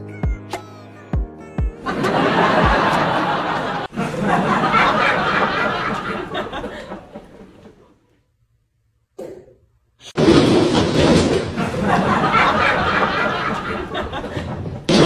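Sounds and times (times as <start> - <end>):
people laughing: 1.8 - 8.2, 11.5 - 15.0.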